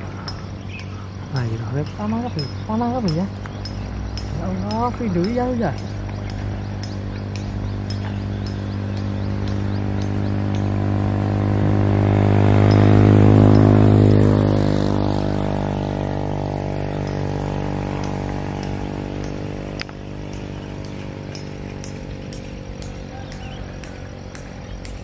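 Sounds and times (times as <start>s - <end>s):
vehicle engine passing by: 0.0s - 25.0s
faint high ticks: 0.2s - 10.8s, 16.0s - 25.0s.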